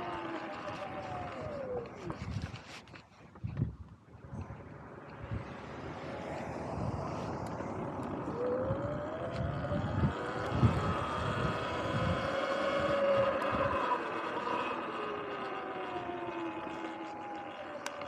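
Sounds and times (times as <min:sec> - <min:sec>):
electric motor whining: 0:00.0 - 0:03.0, 0:04.3 - 0:18.0
gusty wind rumble: 0:03.4 - 0:17.4.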